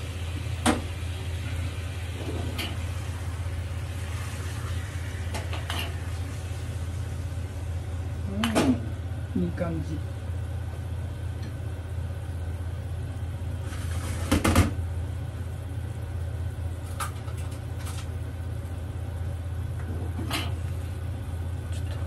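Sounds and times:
syrup simmering in a pan: 2.8s - 8.2s.

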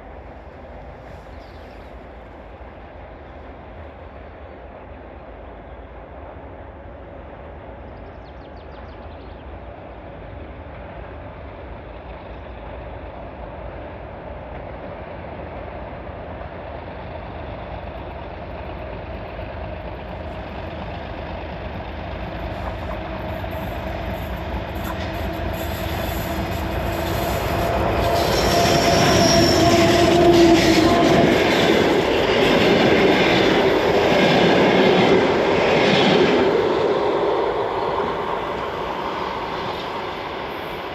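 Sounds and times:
diesel locomotive engine drone: 0.0s - 40.9s
train wheels rattling on rails: 8.2s - 40.9s.

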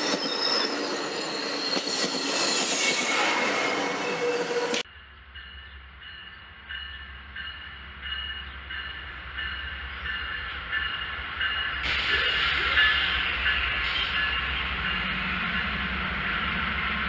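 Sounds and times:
diesel locomotive engine rumble: 3.2s - 17.0s
locomotive bell ringing: 4.0s - 16.7s.

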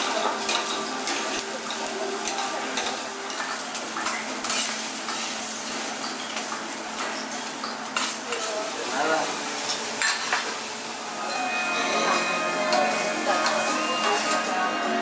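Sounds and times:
food sizzling on a griddle: 0.0s - 15.0s
metal spatulas scraping and clicking: 0.5s - 5.3s.

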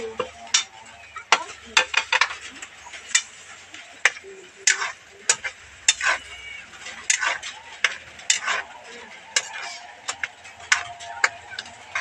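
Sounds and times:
metal spoon clinking on wok: 4.0s - 8.6s.

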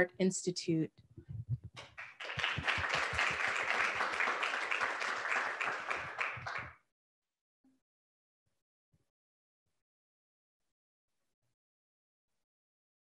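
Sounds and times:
audience clapping: 1.8s - 6.8s.

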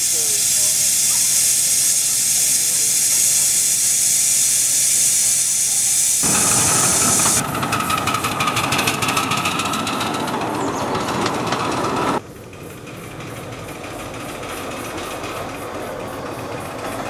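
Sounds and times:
steam locomotive hissing: 0.0s - 17.0s
locomotive running beats: 6.2s - 17.0s.

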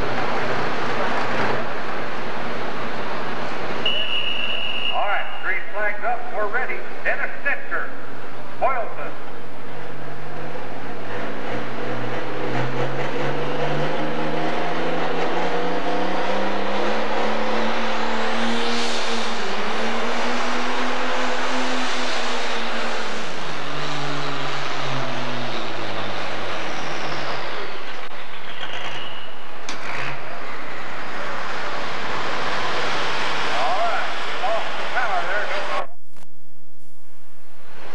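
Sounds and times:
diesel engine at full load: 0.0s - 35.9s
high whistle: 3.8s - 5.5s.

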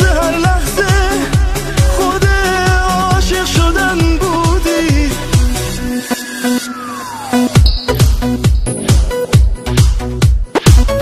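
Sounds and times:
steady synth notes: 5.7s - 10.5s
kick drum dance beat: 7.6s - 11.0s.

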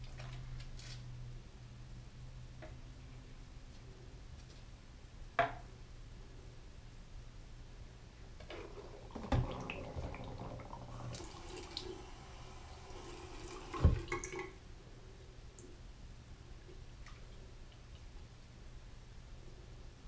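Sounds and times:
water sloshing and dripping: 8.5s - 12.0s, 12.8s - 14.6s.

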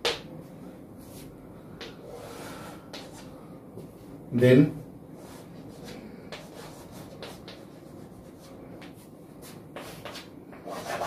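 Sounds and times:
chalk writing on a chalkboard: 2.9s - 3.3s, 5.2s - 11.0s.

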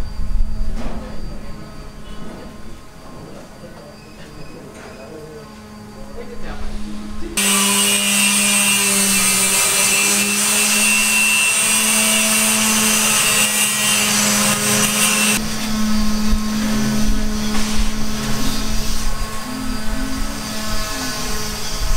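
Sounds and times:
power tool grinding: 7.4s - 21.9s
low hum: 14.7s - 21.9s.

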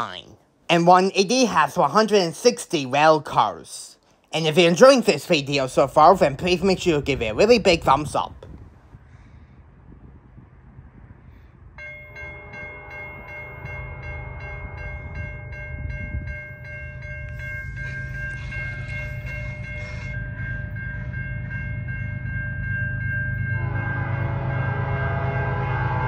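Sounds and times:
diesel train rumble: 5.6s - 26.0s
train air horn chord: 12.2s - 15.2s, 23.4s - 26.0s.

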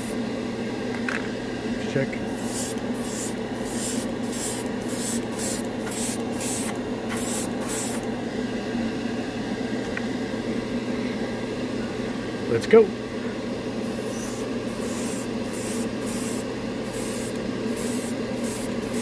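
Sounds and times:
exhaust fan humming: 0.0s - 19.0s
airbrush spraying hissing bursts: 2.3s - 8.0s, 13.9s - 19.0s.

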